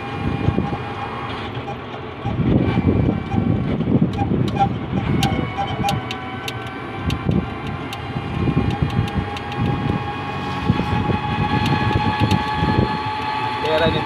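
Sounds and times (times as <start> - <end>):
rumbling rattle: 0.0 - 14.0
steady high whine: 0.0 - 14.0
vehicle engine and road noise: 0.0 - 14.0
sharp clicks: 4.1 - 10.0, 11.6 - 13.3.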